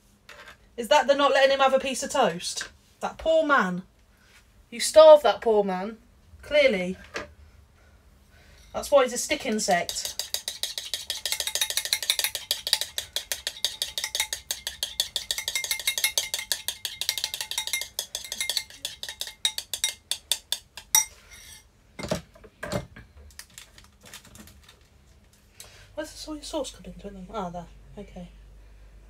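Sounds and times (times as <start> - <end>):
utensil beating in a bowl: 9.3 - 21.2.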